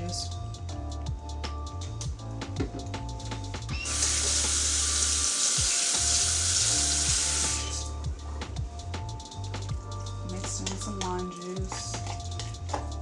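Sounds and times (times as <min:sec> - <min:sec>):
quiet background music: 0:00.0 - 0:13.0
kitchen tap running: 0:03.7 - 0:07.8.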